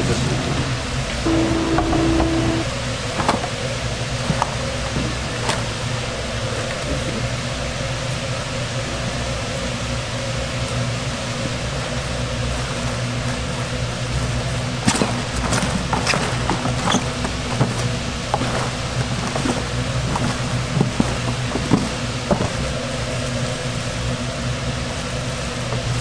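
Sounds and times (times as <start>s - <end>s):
ventilation fan humming: 0.0s - 26.0s.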